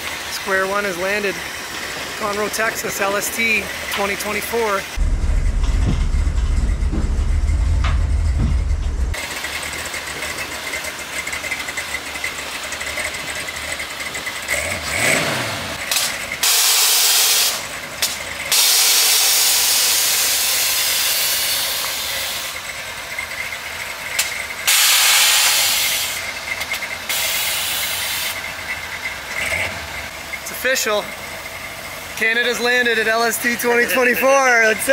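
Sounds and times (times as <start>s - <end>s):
truck engine rumbling: 0.0s - 34.9s
air suspension valves hissing: 16.4s - 17.7s, 18.5s - 22.7s, 24.2s - 28.6s.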